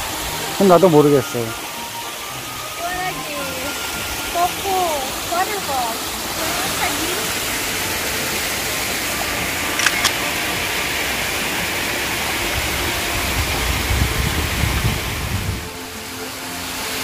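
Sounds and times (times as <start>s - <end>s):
steady rushing noise: 2.8s - 17.0s
short clicks: 9.8s - 10.2s.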